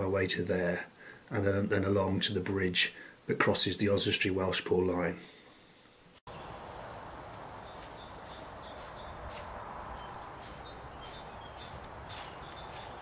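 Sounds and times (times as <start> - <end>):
outdoor hiss: 0.6 - 1.4, 2.6 - 3.8, 5.1 - 11.3
small birds chirping: 5.8 - 13.0
footsteps crunching on ballast: 7.2 - 13.0.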